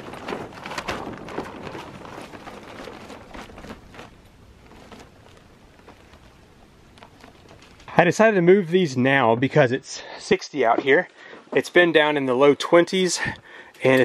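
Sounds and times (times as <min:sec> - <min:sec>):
tent fabric crinkling: 0:00.0 - 0:08.2.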